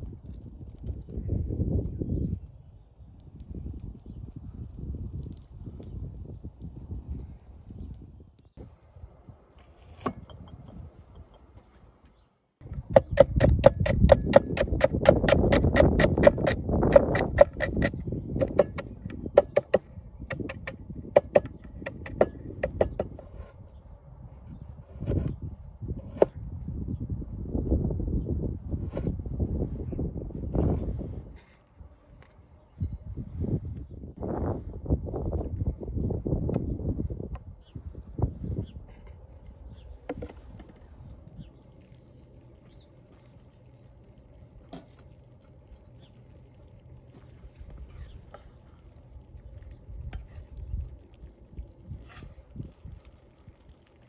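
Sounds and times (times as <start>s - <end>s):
cleaver chopping on wooden board: 12.9s - 23.2s.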